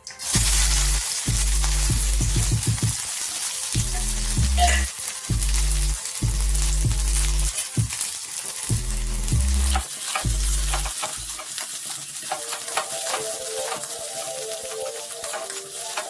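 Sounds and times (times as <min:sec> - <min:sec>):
onions sizzling in hot oil: 0:00.0 - 0:16.0.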